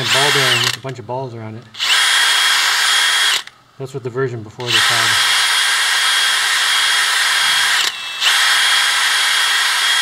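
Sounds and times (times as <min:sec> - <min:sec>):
cordless drill whining: 0:00.0 - 0:00.8, 0:01.8 - 0:03.5, 0:04.7 - 0:10.0.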